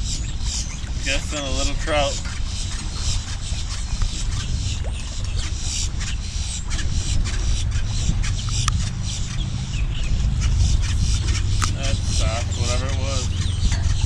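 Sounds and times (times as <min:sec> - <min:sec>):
wind on microphone: 0:00.0 - 0:14.0
faint clicks and ticks: 0:10.4 - 0:12.0.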